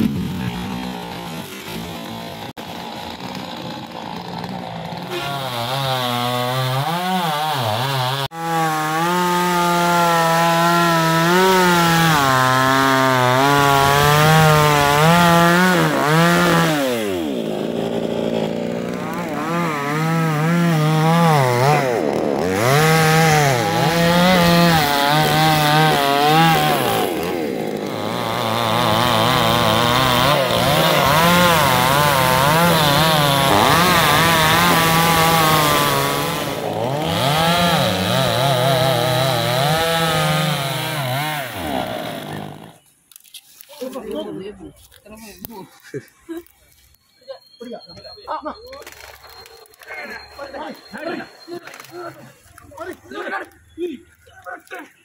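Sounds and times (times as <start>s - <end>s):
chainsaw cutting a log: 0.0s - 42.8s.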